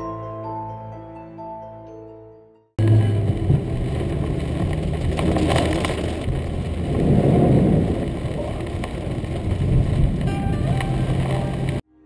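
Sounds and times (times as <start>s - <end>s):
rain on car body: 2.8s - 11.8s
tyres through standing water: 2.8s - 11.8s.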